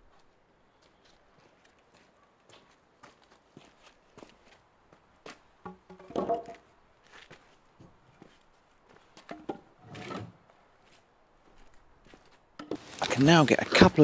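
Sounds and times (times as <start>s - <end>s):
timber knocking on concrete: 5.6s - 6.6s.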